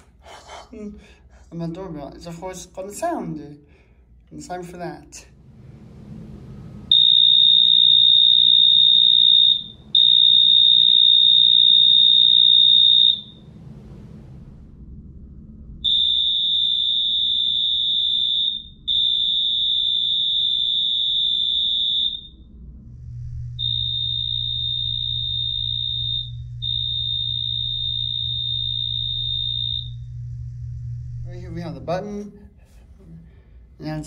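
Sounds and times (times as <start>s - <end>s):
high-pitched electronic alarm tones: 6.9s - 13.8s, 15.7s - 31.9s.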